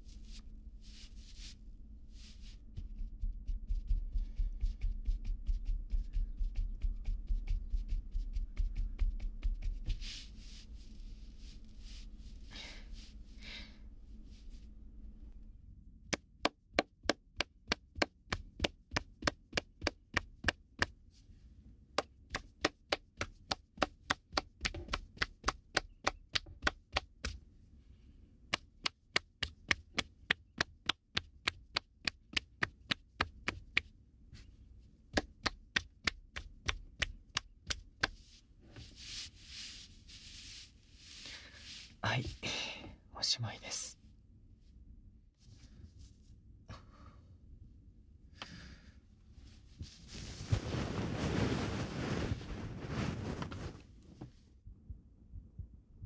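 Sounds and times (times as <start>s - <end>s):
hands tapping rhythmically: 2.8s - 10.0s, 16.1s - 21.0s, 22.0s - 27.4s, 28.5s - 33.9s, 35.1s - 38.3s.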